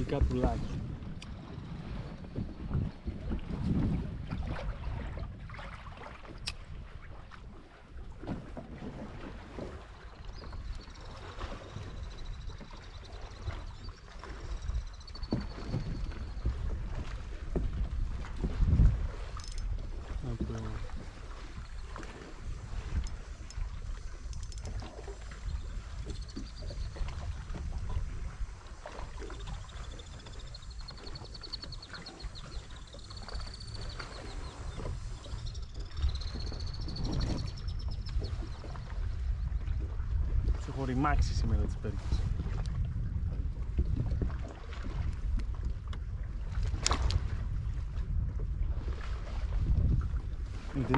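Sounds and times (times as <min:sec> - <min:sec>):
water lapping against kayak hull: 0:00.0 - 0:50.9
wind on microphone: 0:00.0 - 0:50.9
fishing reel whirring: 0:22.8 - 0:26.7.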